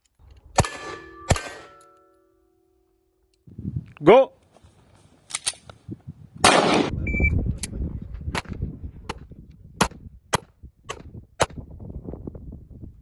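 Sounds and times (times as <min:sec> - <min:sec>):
handgun shots: 0:06.4 - 0:06.9.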